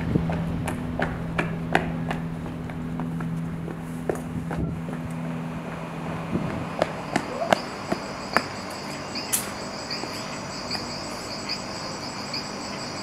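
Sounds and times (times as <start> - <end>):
footsteps on stone paving: 0.0 - 8.6
crickets chirping: 5.8 - 13.0.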